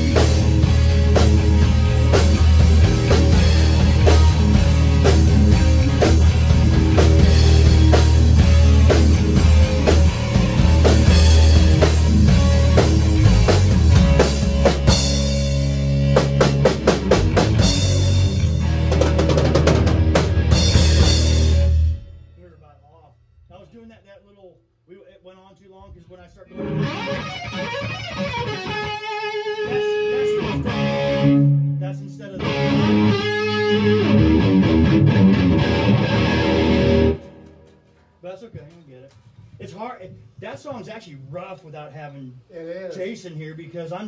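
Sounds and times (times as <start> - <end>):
rapid drum hits: 0.0 - 22.2
rock band playing: 0.0 - 22.4, 26.5 - 38.1.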